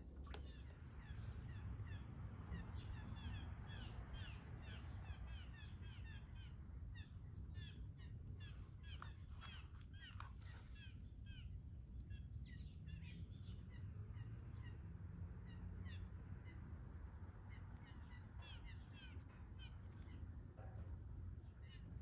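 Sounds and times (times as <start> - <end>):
songbirds chirping: 0.0 - 22.0.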